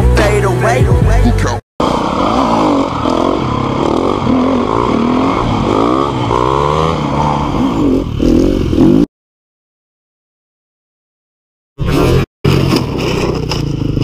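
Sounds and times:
dirt bike engines revving: 0:01.8 - 0:09.1, 0:11.8 - 0:14.0.

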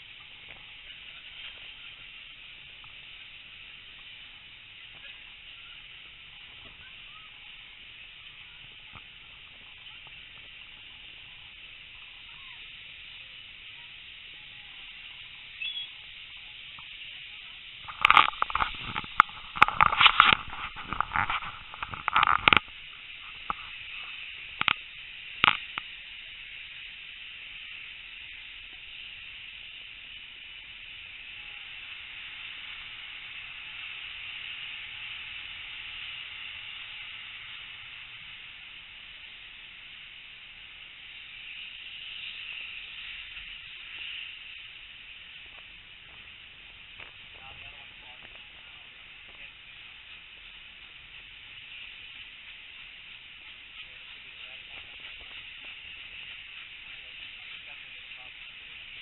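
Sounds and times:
train wind and running noise: 0:16.5 - 0:59.0.

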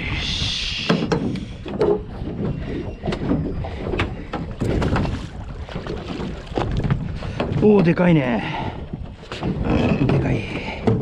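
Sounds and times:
water around boat: 0:00.0 - 0:11.0
wind buffeting microphone: 0:00.0 - 0:11.0.

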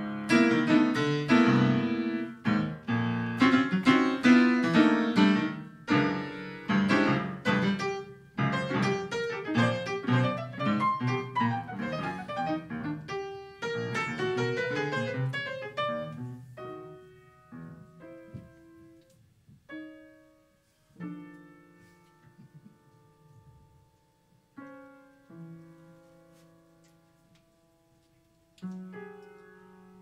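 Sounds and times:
upright piano improvising: 0:00.0 - 0:30.0.

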